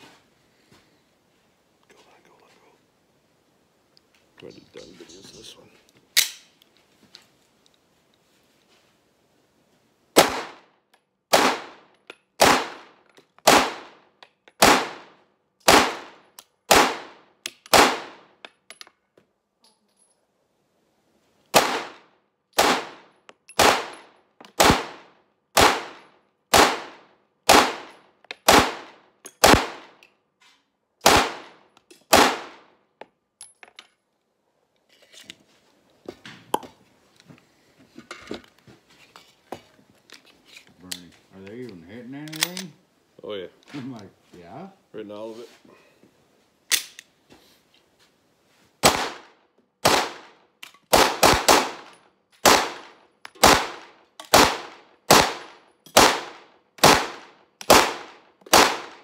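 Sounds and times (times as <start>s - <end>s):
pistol shots: 10.2s - 10.6s, 11.3s - 14.0s, 14.6s - 15.1s, 15.7s - 18.3s, 21.5s - 22.0s, 22.6s - 24.0s, 24.6s - 27.9s, 28.5s - 30.0s, 31.0s - 32.7s, 48.8s - 59.0s
pistol handling clicks and rattles: 18.4s - 19.0s, 42.2s - 42.7s, 46.7s - 47.1s, 50.6s - 50.9s.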